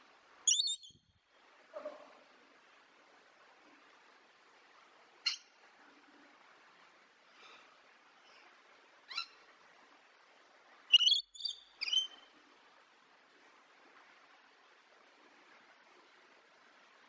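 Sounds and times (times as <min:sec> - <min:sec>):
faint steady hiss: 0:00.0 - 0:17.0
parrot high-pitched calls: 0:00.5 - 0:01.0, 0:09.1 - 0:09.4, 0:10.9 - 0:12.3.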